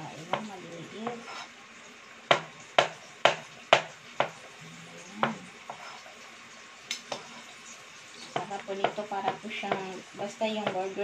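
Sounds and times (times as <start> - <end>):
knife knocking on cutting board: 0.3 - 1.2, 2.3 - 4.4, 8.4 - 9.9.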